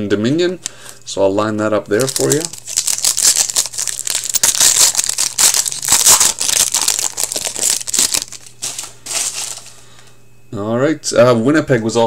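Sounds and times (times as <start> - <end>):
foil wrapper crinkling: 1.9 - 9.8.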